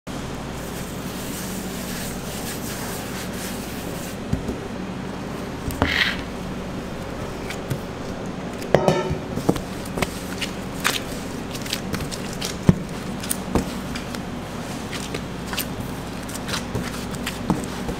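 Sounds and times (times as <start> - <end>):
background hum: 0.1 - 17.9
metal bowl knocking on metal table: 8.8 - 9.3.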